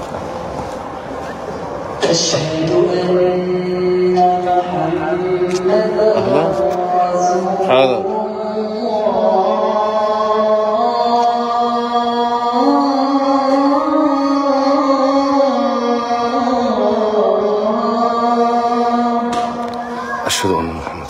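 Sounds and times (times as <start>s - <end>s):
man chanting call to prayer: 2.2s - 8.6s, 20.2s - 21.0s.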